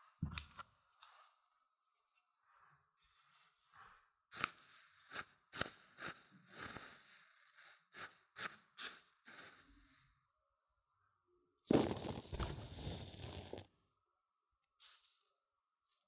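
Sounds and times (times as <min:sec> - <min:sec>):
grits scraping on microphone: 0:11.7 - 0:13.6.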